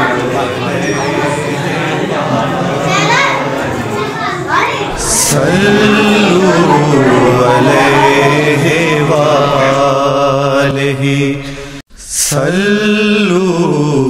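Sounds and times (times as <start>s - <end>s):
person chanting slow melody: 5.0s - 11.4s.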